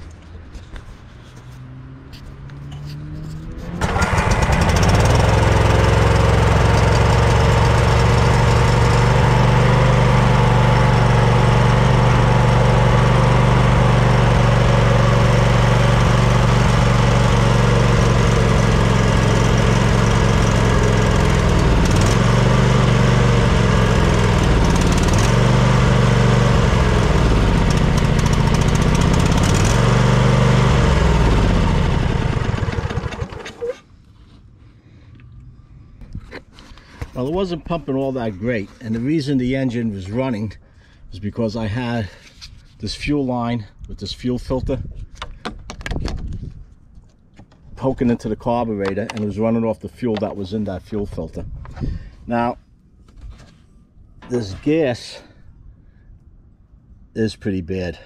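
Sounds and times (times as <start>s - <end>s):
riding mower engine running: 2.1s - 33.8s.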